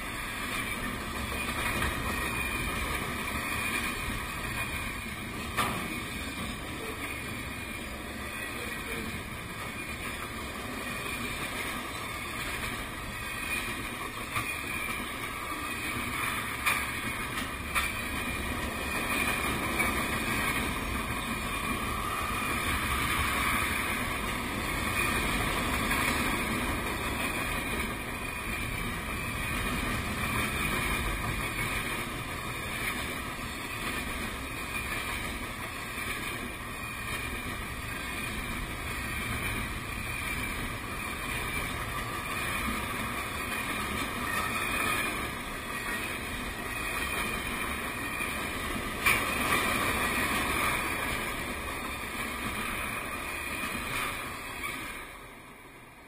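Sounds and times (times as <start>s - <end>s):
train wheels rumbling on rails: 0.0s - 56.0s
high ringing tone: 17.3s - 29.6s.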